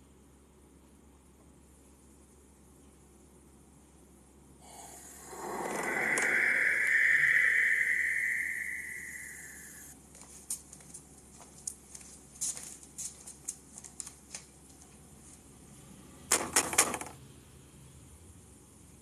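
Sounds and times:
high steady tone: 4.8 - 9.9.

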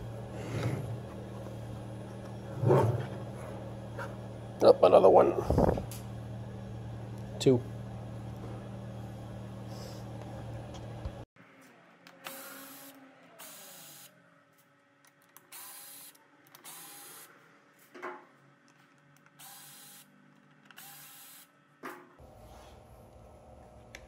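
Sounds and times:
cordless drill running: 15.5 - 17.3, 19.4 - 20.0, 20.8 - 21.5.

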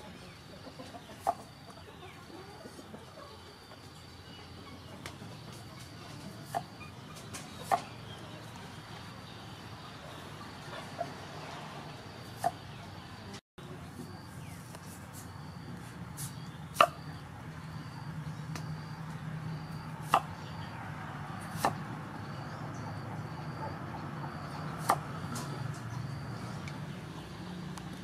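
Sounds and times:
cleaver chopping on wooden board: 21.6 - 21.8.

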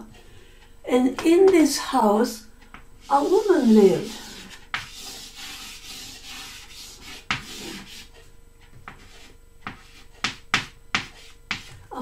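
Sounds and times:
chalk tapping on a blackboard: 2.7 - 11.9
chalk scraping on a blackboard: 3.0 - 8.2, 8.9 - 11.9.

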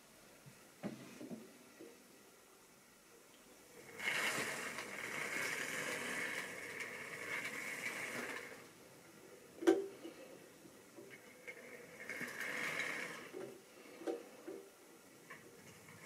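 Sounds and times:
model train motor whirring: 3.8 - 8.8, 11.1 - 13.4.

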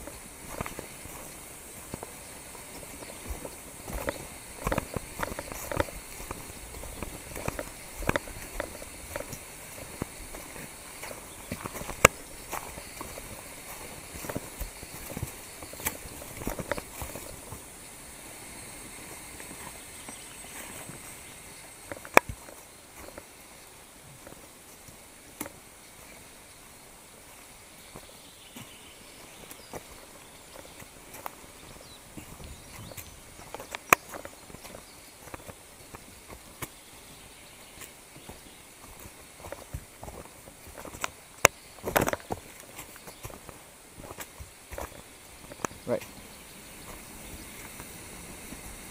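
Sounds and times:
faint high hiss: 0.0 - 48.9
footsteps on dry leaves: 0.0 - 48.9.

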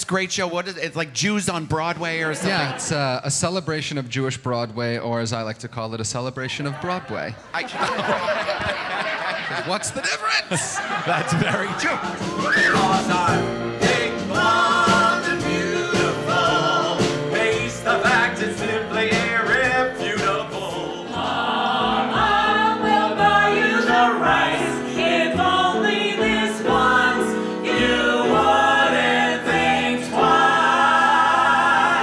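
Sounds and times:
group singing with instruments: 11.0 - 32.0.

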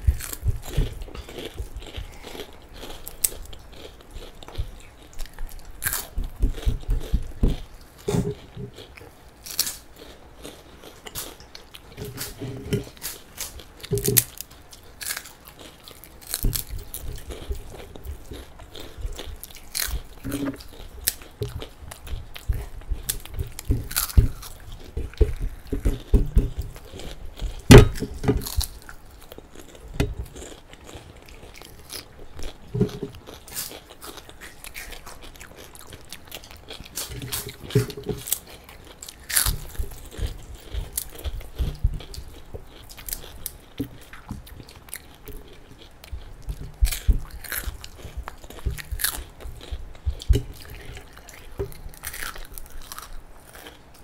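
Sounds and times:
quiet chewing: 0.0 - 54.0
crisp crunching bites: 13.0 - 25.0, 46.4 - 53.8.

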